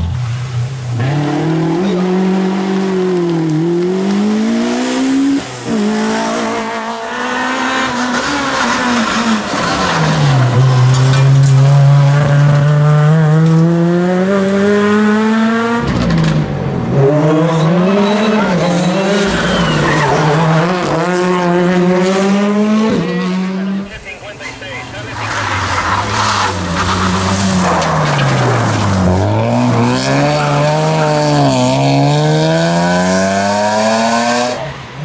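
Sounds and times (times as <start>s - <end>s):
rally car engines revving: 0.0s - 35.0s
tyre squeal: 17.5s - 20.4s.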